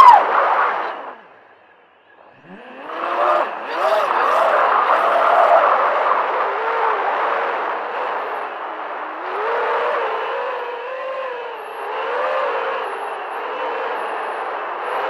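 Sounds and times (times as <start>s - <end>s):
rush of wind: 0.0s - 1.4s
drone motors whining: 0.0s - 15.0s.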